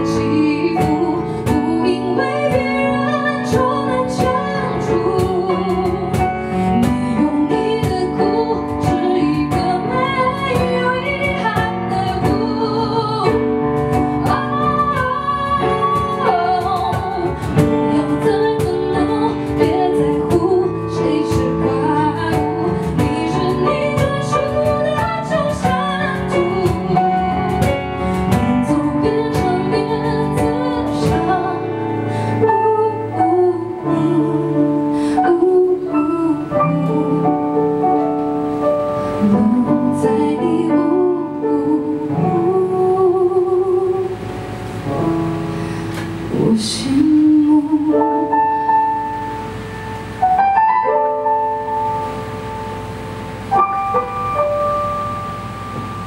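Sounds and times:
woman singing slow song: 0.0s - 50.6s
acoustic guitar: 0.0s - 56.0s
keyboard: 0.0s - 56.0s
hand drum: 0.1s - 31.6s.

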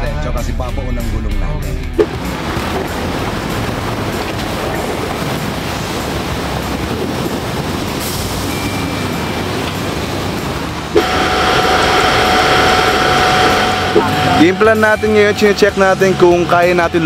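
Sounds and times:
wheels splashing through water: 2.0s - 17.0s
droning sound with held tones: 11.0s - 16.5s.

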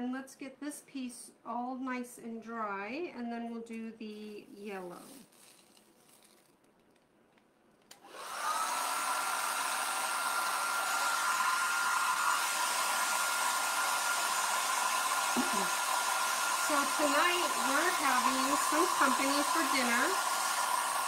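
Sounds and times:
hair dryer whining: 7.9s - 21.0s.

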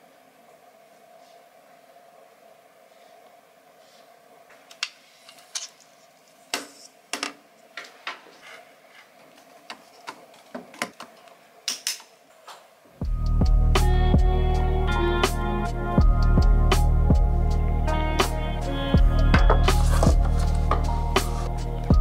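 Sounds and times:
music: 13.0s - 22.0s.

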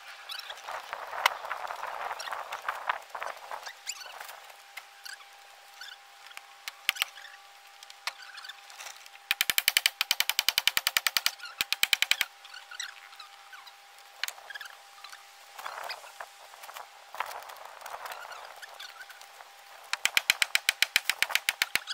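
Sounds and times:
rapid sharp mechanical clicks: 9.3s - 12.3s, 19.9s - 21.9s.

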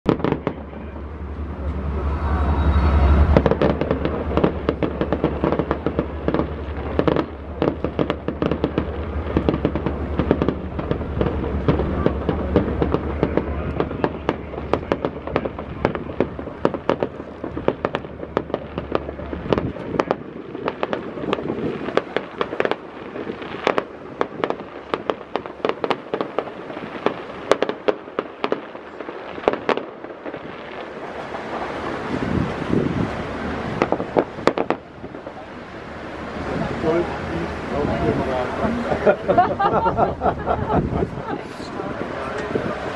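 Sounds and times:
fireworks bangs and crackling: 0.0s - 42.9s
low rumble: 0.1s - 28.2s.

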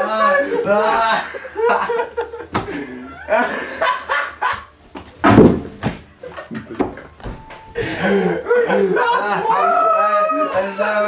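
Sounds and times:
man laughing and shouting: 0.0s - 2.0s, 8.1s - 11.0s.

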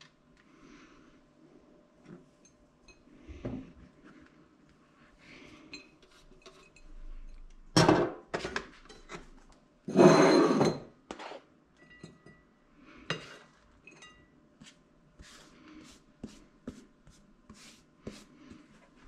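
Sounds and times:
hand sweeping grated cheese: 14.6s - 18.8s.

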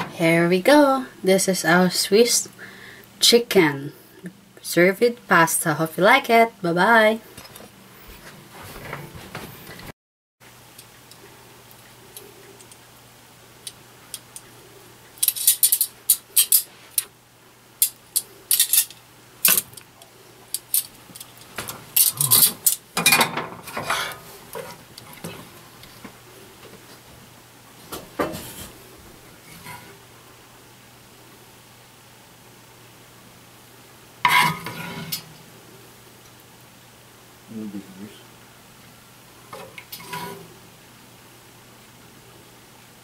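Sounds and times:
utensil scraping ceramic plate: 34.3s - 35.2s, 40.0s - 40.5s.

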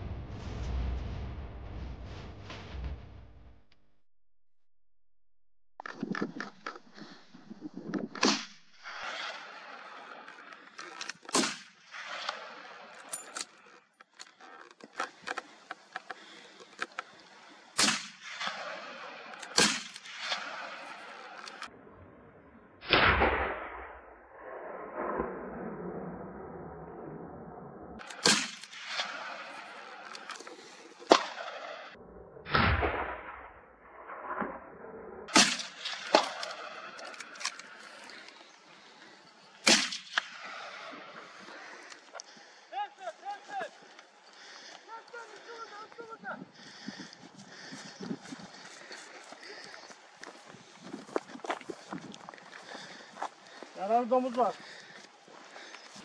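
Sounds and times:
distant gunshot cracks: 11.3s - 12.4s, 17.8s - 20.8s, 28.0s - 29.6s, 35.3s - 36.8s, 39.6s - 40.9s
loud gunshots echoing: 35.3s - 36.3s.

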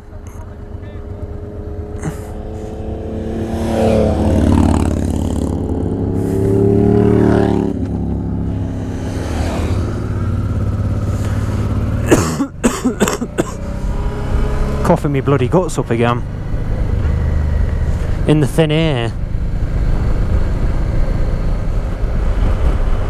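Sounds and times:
motorcycle engine revving: 0.0s - 23.0s
person coughing harshly: 2.0s - 2.4s, 12.0s - 13.6s.

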